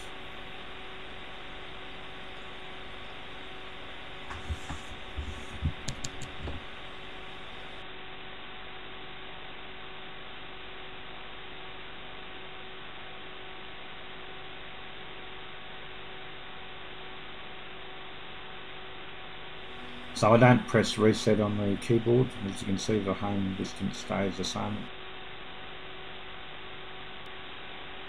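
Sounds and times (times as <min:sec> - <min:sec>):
electrical hiss: 0:00.0 - 0:07.8, 0:19.6 - 0:24.9
constant hum: 0:00.0 - 0:08.0, 0:12.8 - 0:28.0.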